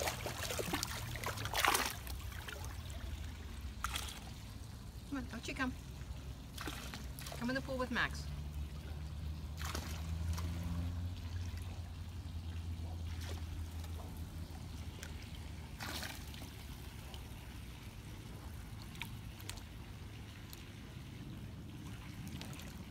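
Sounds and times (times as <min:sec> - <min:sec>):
brief water splashes: 0:00.0 - 0:04.4, 0:06.5 - 0:07.7, 0:08.5 - 0:17.5, 0:21.7 - 0:22.9
pool water trickling and lapping: 0:00.0 - 0:22.9.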